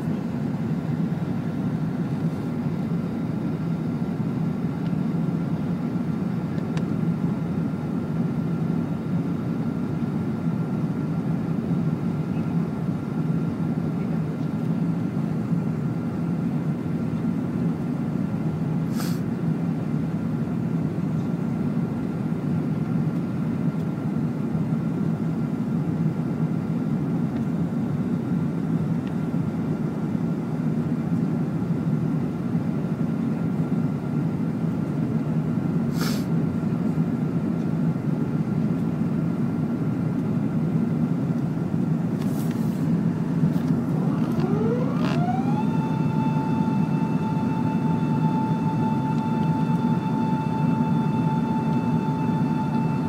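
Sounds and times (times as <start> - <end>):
jet cabin rumble with hiss: 0.0 - 53.0
rising whine: 42.9 - 53.0
faint steady high tone: 43.8 - 53.0.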